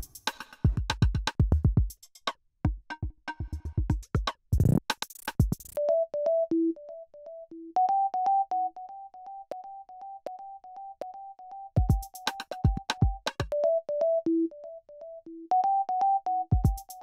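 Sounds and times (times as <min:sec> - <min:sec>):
drum machine beat: 0:00.0 - 0:02.1, 0:02.7 - 0:05.8, 0:11.8 - 0:13.5, 0:16.5 - 0:17.0.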